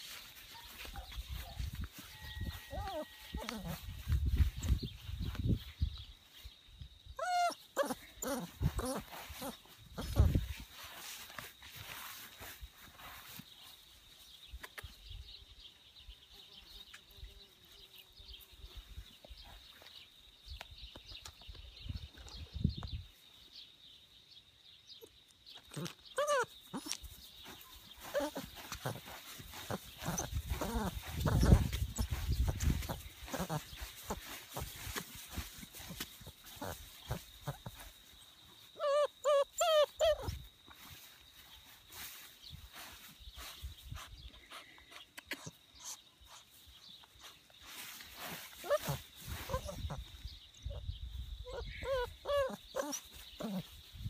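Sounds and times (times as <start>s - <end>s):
rustling through grass: 0.0s - 6.6s, 7.9s - 15.0s, 25.8s - 44.8s, 46.4s - 54.0s
puppy whining: 2.2s - 3.9s, 7.2s - 10.3s, 25.7s - 27.0s, 28.0s - 33.7s, 38.8s - 40.4s, 48.6s - 50.0s, 51.4s - 53.6s.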